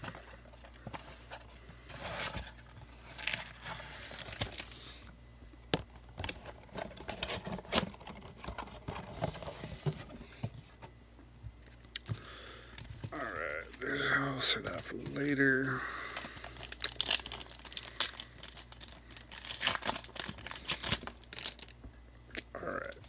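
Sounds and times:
foil wrappers crinkling: 2.0s - 5.0s, 12.1s - 21.8s
cardboard box rustling: 6.0s - 11.0s.

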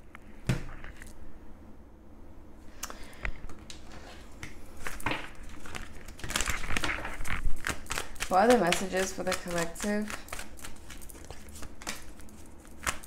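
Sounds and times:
cards clicking and tapping: 4.8s - 13.0s.

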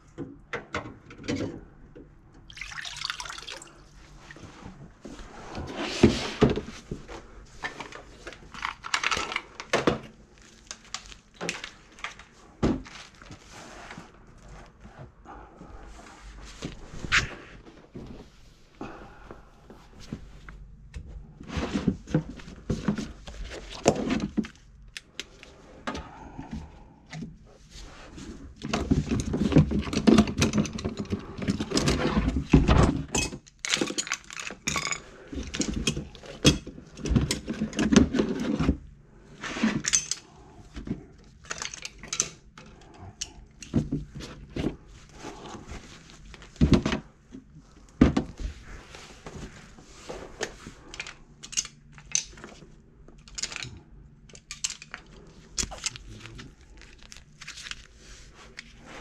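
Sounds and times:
knocks scrapes and rustling: 4.3s - 9.1s.

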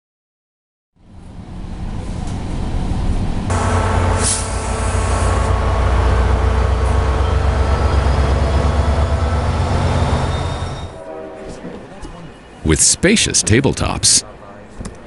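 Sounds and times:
diesel locomotive engine hum: 1.0s - 15.0s
air hiss: 4.0s - 5.6s.

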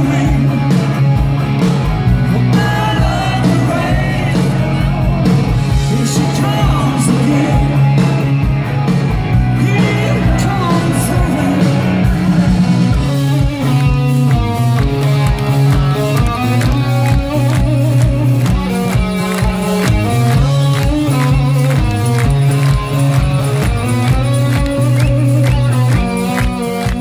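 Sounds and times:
man singing: 0.0s - 1.0s, 2.4s - 8.4s, 9.4s - 13.5s
bass guitar: 0.0s - 27.0s
drums: 0.0s - 27.0s
electric guitars: 0.0s - 27.0s.

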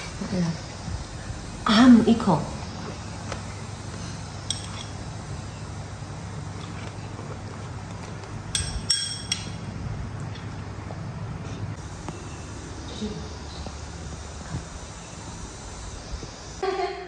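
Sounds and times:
steady low hum: 0.0s - 17.0s
metal spoon clinking on bowl: 4.5s - 4.9s, 8.5s - 9.6s.

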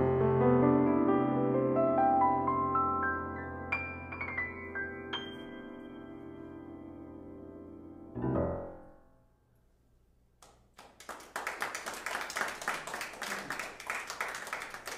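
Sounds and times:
piano chords ringing: 0.0s - 9.5s
audience applause: 10.8s - 14.9s.

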